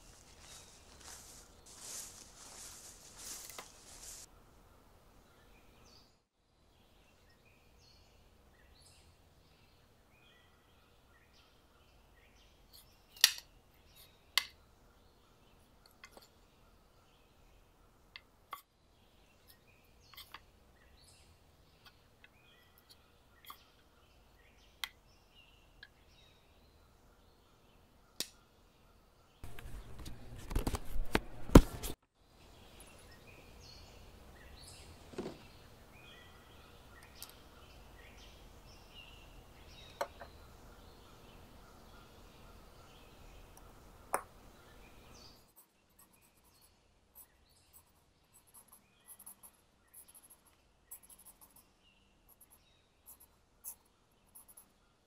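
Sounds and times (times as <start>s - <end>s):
faint hiss: 0.0s - 4.3s
birds chirping: 0.0s - 30.3s, 32.3s - 55.0s.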